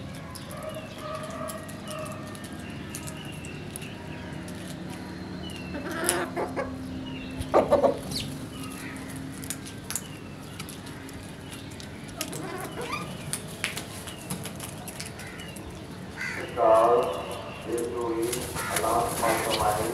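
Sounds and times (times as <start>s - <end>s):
birds chirping: 0.0s - 19.9s.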